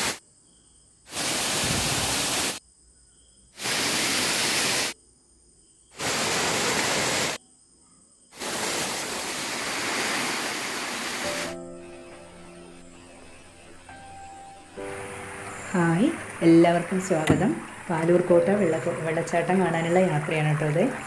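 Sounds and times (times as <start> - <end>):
waterfall rushing over rock: 6.0 - 7.4, 8.4 - 11.6.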